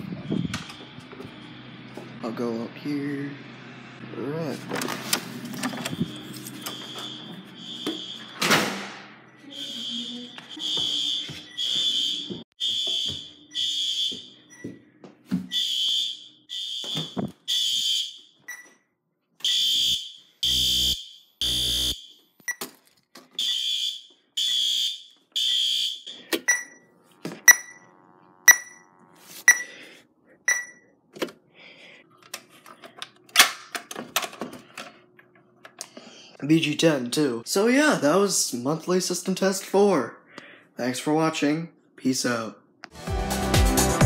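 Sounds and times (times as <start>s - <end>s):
fire alarm horns beeping: 5.6s - 8.5s, 9.3s - 14.7s, 15.5s - 18.6s, 19.4s - 22.3s, 23.4s - 29.8s.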